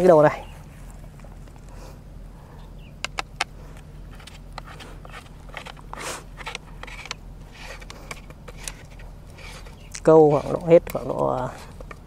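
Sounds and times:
sharp clicks: 3.0 - 3.6
landing net rustling and scraping: 3.6 - 12.0.

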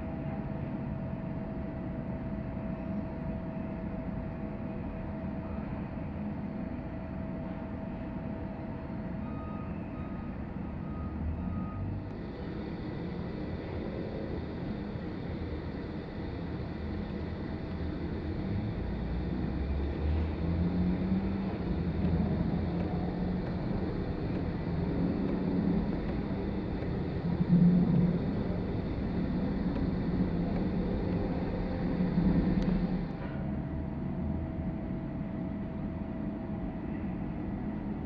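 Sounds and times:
jet engines rumbling: 10.3 - 38.0.

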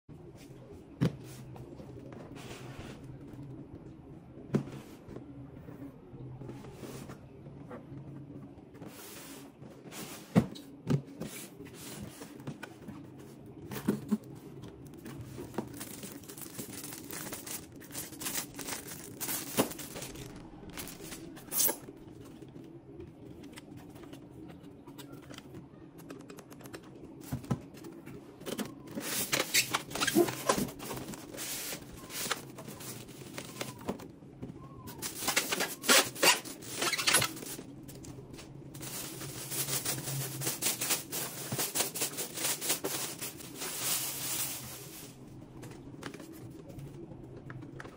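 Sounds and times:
plastic bag crinkling: 15.0 - 21.9, 34.9 - 45.3.

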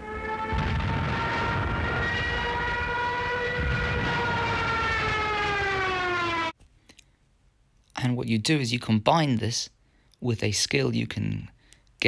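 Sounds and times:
dive siren wailing: 0.0 - 6.6
low rumble: 0.5 - 5.8.

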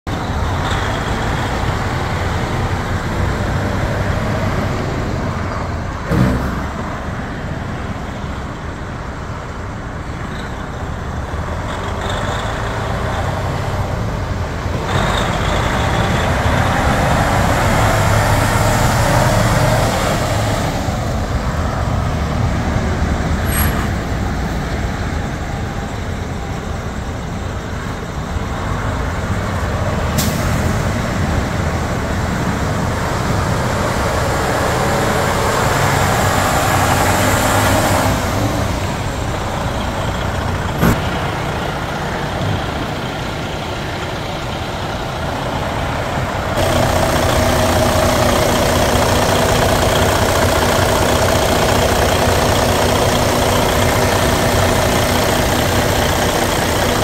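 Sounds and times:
diesel truck driving past: 0.1 - 57.0.

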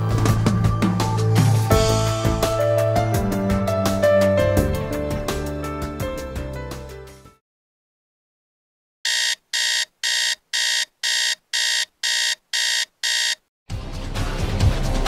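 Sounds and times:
music: 0.0 - 7.4, 13.7 - 15.0
phone alert beeps: 9.1 - 13.4.

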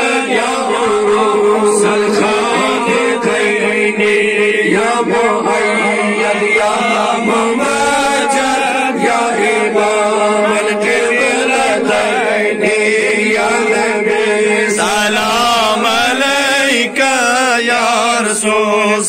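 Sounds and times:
men chanting together: 0.0 - 19.0
voice on a microphone: 0.0 - 19.0.

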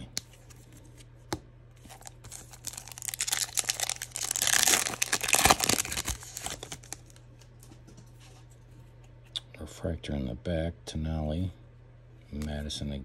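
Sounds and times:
plastic wrapper tearing and crinkling: 1.8 - 7.2.

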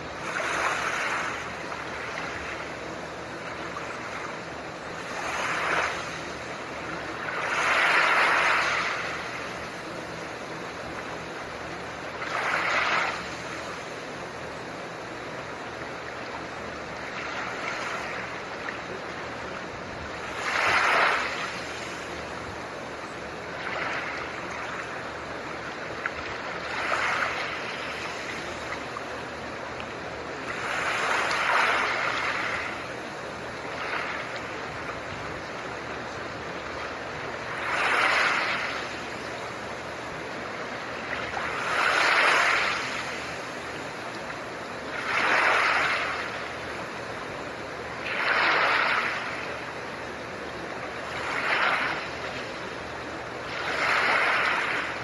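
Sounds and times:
soft ocean waves: 0.0 - 55.0
steady noise hiss: 0.0 - 55.0.

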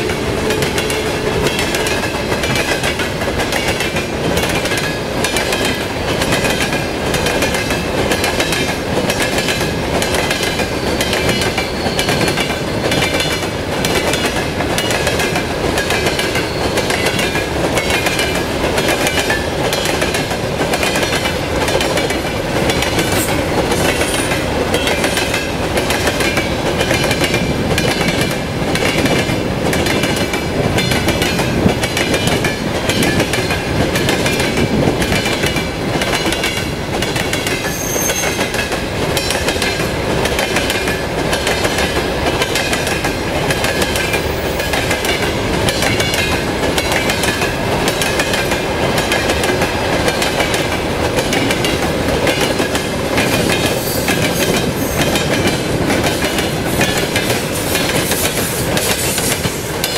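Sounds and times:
freight train cars rumbling: 0.0 - 59.9
wheels clacking on rails: 0.0 - 59.9.

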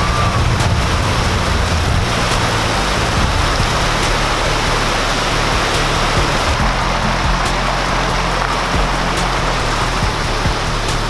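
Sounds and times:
waterfall splashing onto rocks: 0.0 - 11.0.

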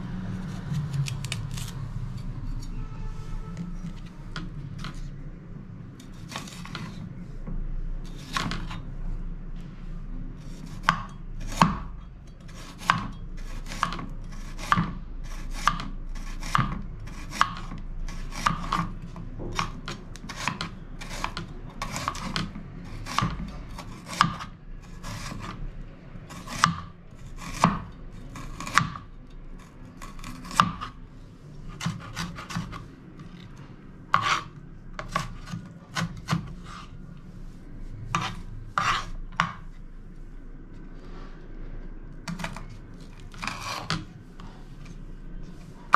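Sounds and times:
knife rasping through onion: 0.3 - 2.8, 6.0 - 7.0, 8.1 - 8.8, 12.4 - 25.6, 26.3 - 29.0, 29.6 - 31.0, 31.7 - 33.4, 34.1 - 37.0, 38.1 - 39.6, 42.3 - 45.9.

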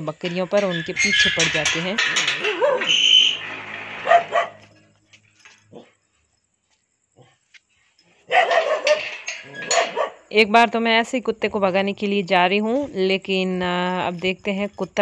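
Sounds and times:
dog barking: 4.0 - 4.6, 8.3 - 9.0, 9.6 - 10.2.

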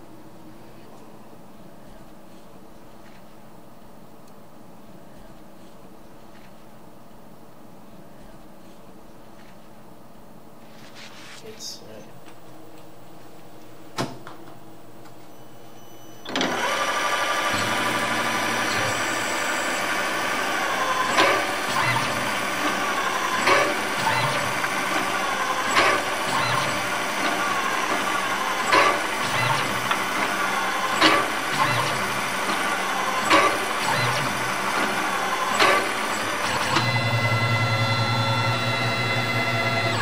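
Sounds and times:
mill spindle running: 15.2 - 40.0.

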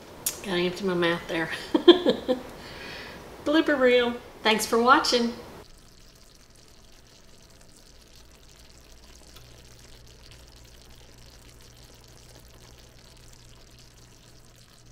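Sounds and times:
faint low hum: 0.0 - 14.9
syrup bubbling in a skillet: 5.6 - 14.9.

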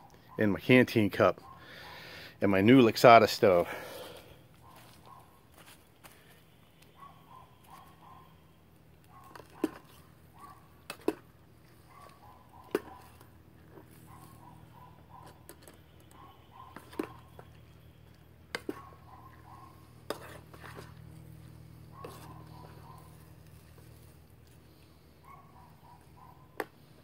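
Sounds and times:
distant dog barking: 1.2 - 2.2, 4.6 - 5.4, 6.9 - 10.8, 11.8 - 13.2, 14.0 - 15.5, 16.1 - 17.4, 18.6 - 20.4, 21.7 - 23.4, 25.2 - 26.7
metal spoon scraping a cup: 20.0 - 21.0.

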